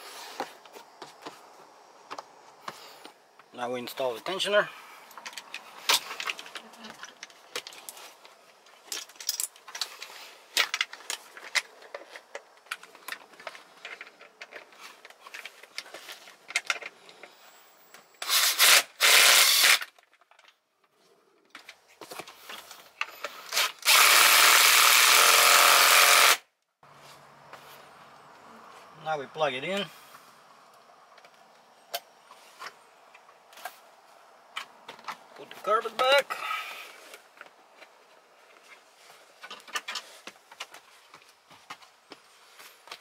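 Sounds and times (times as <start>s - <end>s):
metal parts clicking and rattling: 8.8s - 17.3s
cordless power tool running: 23.6s - 26.4s.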